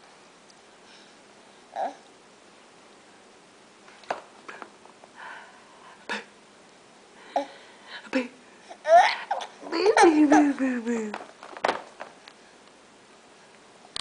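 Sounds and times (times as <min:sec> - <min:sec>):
baby vocal sounds: 0:08.7 - 0:10.6.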